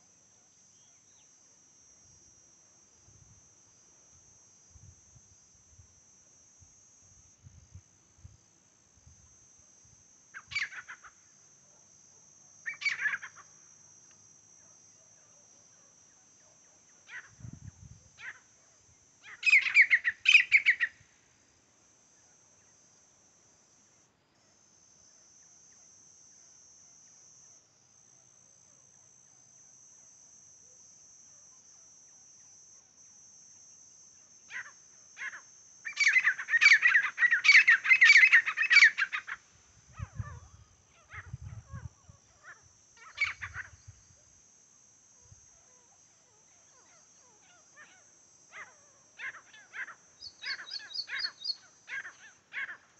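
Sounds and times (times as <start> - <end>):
bird calling: 10.4 - 11.1, 12.7 - 13.5, 19.3 - 21.0, 35.2 - 39.4, 40.0 - 43.8, 46.7 - 52.9.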